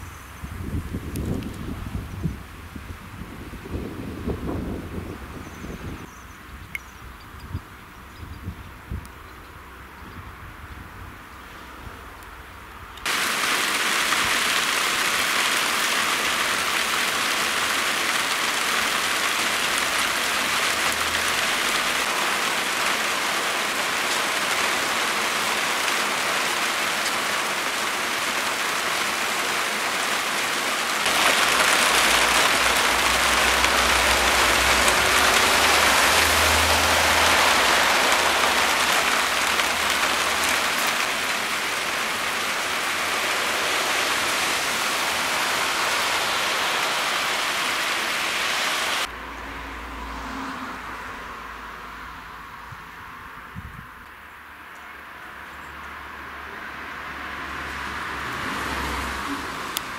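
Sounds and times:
rain hissing: 13.0 - 49.1, 57.4 - 59.9.

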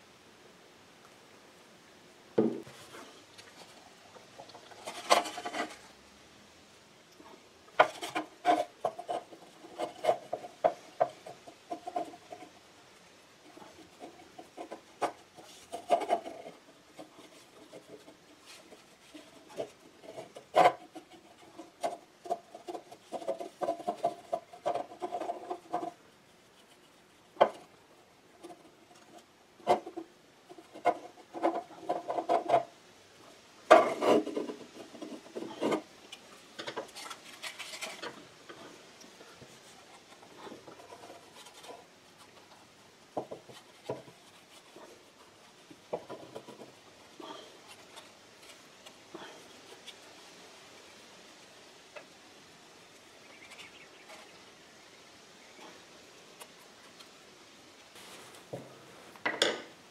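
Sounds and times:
brush tapping wood: 2.4 - 5.8, 13.4 - 26.0, 26.6 - 27.7, 33.7 - 50.1.

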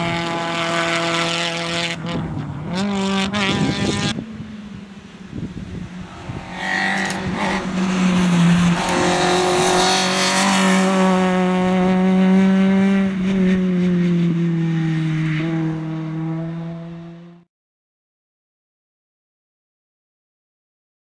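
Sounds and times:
rally car engine at high revs: 0.0 - 4.3, 6.0 - 17.4.

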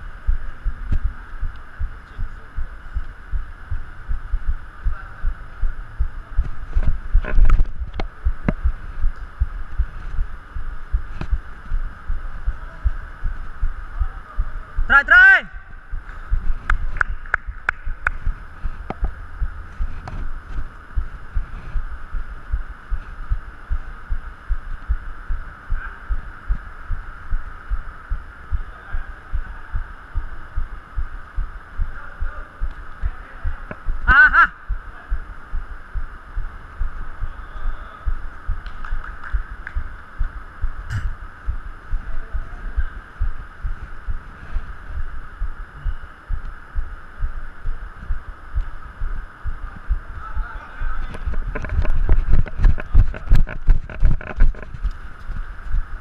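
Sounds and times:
steady hum: 0.0 - 56.0
man shouting: 14.9 - 15.8, 34.0 - 34.6.

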